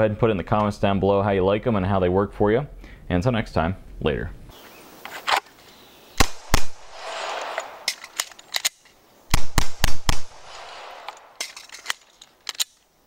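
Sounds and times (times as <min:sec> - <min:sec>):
pistol shots: 0:06.2 - 0:08.2, 0:09.3 - 0:11.6.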